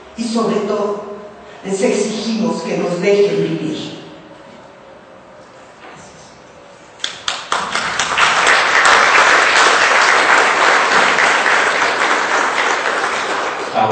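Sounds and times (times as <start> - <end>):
audience applauding: 7.0 - 13.9.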